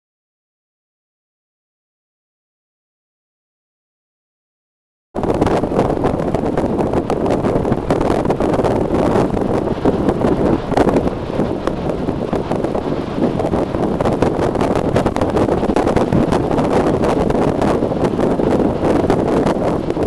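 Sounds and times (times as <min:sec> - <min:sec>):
heavy surf breaking: 0:05.2 - 0:20.0
wind buffeting microphone: 0:05.2 - 0:20.0.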